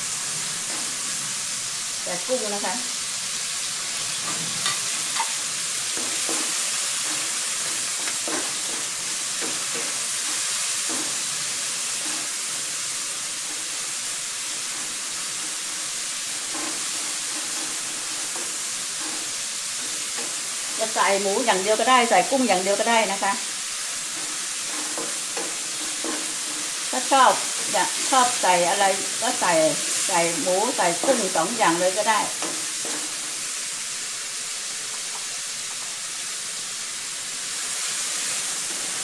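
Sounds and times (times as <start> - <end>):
food sizzling in a wok: 0.0 - 39.0
spatula strokes: 4.3 - 33.5.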